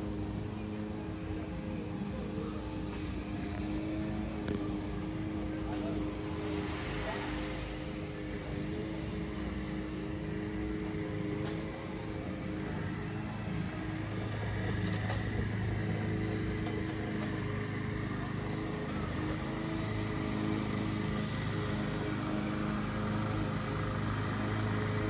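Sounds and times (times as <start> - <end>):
motor droning with whine: 0.0 - 25.0.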